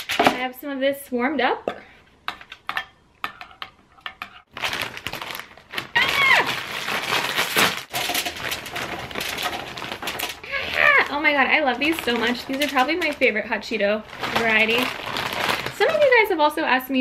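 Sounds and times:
snacks pouring onto foil tray: 0:04.5 - 0:16.2
plastic snack bag crinkling: 0:04.5 - 0:16.5.

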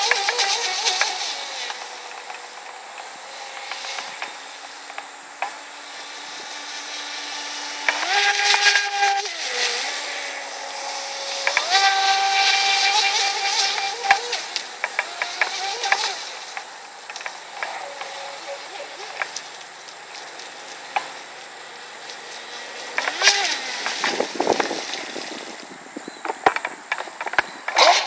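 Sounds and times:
rc speedboat motor whine: 0:00.0 - 0:28.0
water hiss: 0:00.0 - 0:28.0.

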